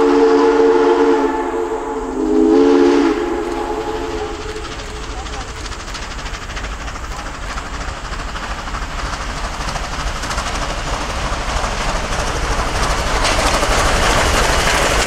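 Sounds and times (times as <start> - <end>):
steam locomotive approaching: 0.0 - 15.0
train wheels on rails: 0.0 - 15.0.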